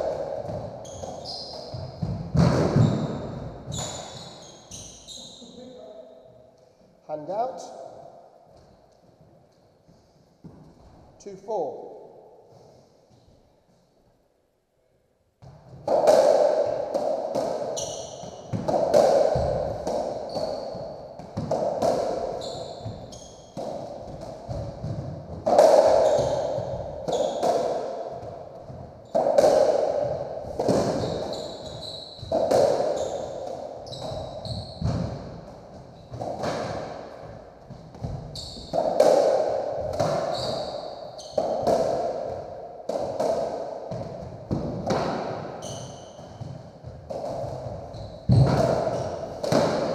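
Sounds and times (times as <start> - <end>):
ball hit by rackets off walls: 0.0 - 4.1, 15.4 - 35.5, 36.1 - 49.9
trainers squeaking on wooden floor: 0.8 - 2.1, 22.2 - 23.6, 31.0 - 35.0, 38.0 - 38.9.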